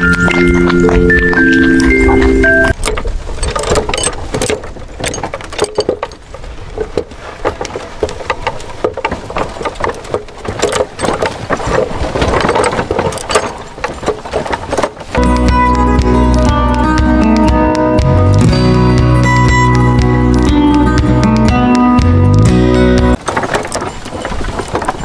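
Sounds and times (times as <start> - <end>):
plastic parts clicking and rattling: 0.0 - 16.4, 23.1 - 25.0.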